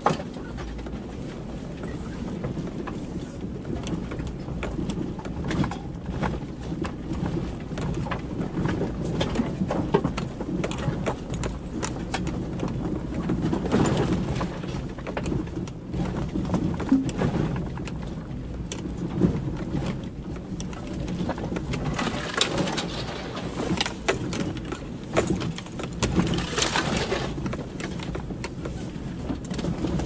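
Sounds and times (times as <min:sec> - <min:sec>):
vehicle engine rumble: 0:00.0 - 0:30.0
branches and stones hitting vehicle: 0:21.8 - 0:27.6.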